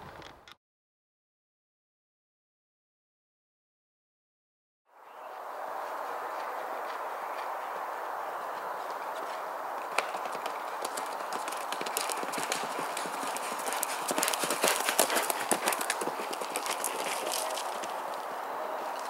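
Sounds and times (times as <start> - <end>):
horse hoofbeats cantering on dirt: 5.3 - 18.3.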